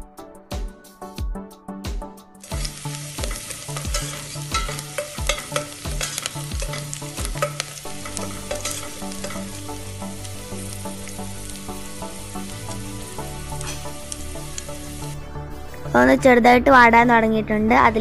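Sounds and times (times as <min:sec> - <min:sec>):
background music with soft beat: 0:00.0 - 0:18.0
spoon clicking and scraping pot: 0:02.4 - 0:09.7
food sizzling in hot oil: 0:02.4 - 0:15.2.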